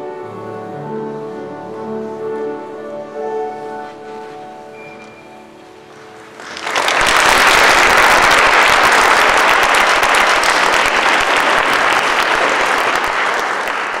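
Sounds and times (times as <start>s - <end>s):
piano chord: 0.0s - 6.5s
audience applauding: 6.2s - 14.0s.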